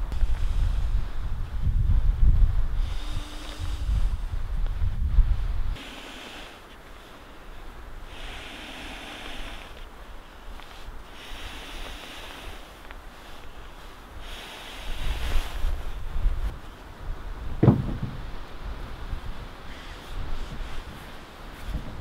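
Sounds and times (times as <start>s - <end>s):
wind gusting on microphone: 0.0s - 22.0s
dull thump: 17.6s - 18.2s.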